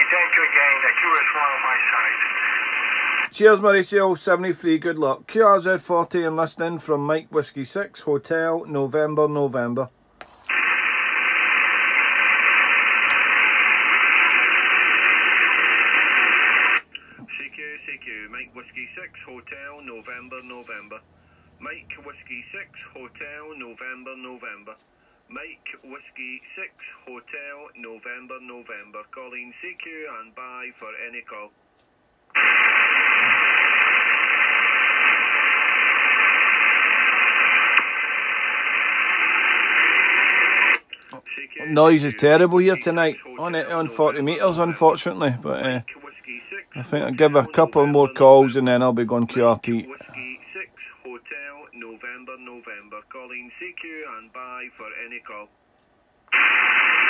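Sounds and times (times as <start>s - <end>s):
radio receiver hiss: 0.0s - 3.4s, 10.2s - 24.8s, 32.3s - 55.5s, 56.3s - 57.0s.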